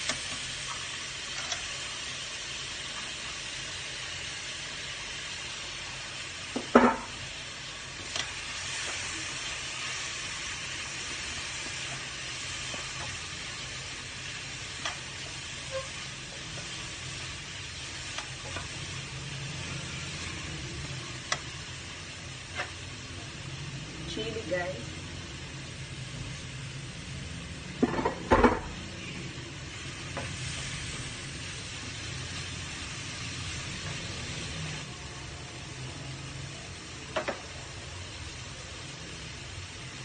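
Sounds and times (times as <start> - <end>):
food sizzling in a wok: 0.0 - 40.0.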